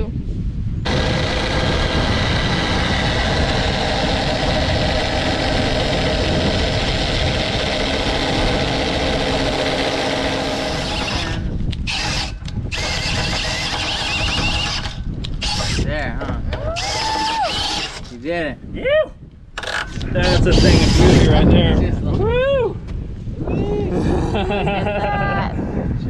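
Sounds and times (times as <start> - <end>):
drill boring into wood: 0.8 - 16.0, 16.6 - 18.2, 19.6 - 21.4.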